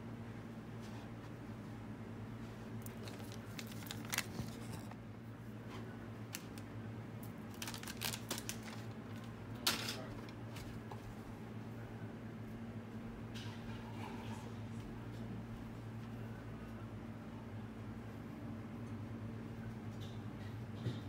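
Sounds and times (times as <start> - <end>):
steady low hum: 0.0 - 21.0
rustling and handling noises: 0.7 - 11.3.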